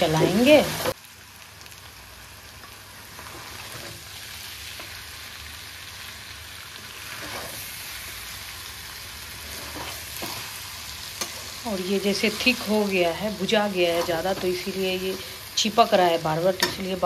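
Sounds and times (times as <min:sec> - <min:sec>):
chicken sizzling in a pan: 0:00.0 - 0:17.0
spatula scraping a pan: 0:03.2 - 0:04.1, 0:06.8 - 0:07.9, 0:09.3 - 0:11.6.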